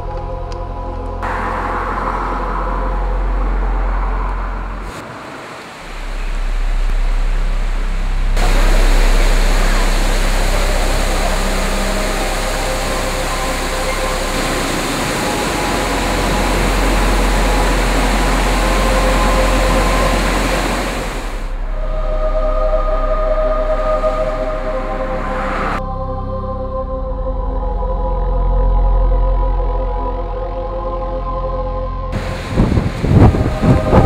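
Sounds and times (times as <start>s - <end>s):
low ambient music drone: 0.0s - 34.0s
waterfall rushing: 1.2s - 25.8s, 32.2s - 34.0s.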